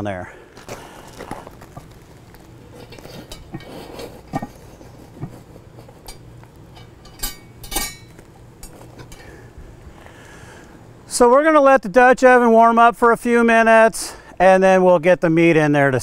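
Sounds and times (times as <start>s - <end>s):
cast iron pot clinking: 1.7s - 9.4s.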